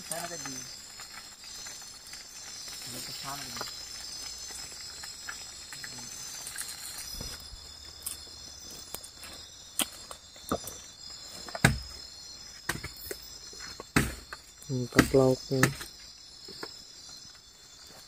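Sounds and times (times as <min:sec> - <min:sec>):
forest insects chorus: 0:00.0 - 0:18.0
sharp knocks: 0:11.6 - 0:11.9, 0:13.9 - 0:14.3.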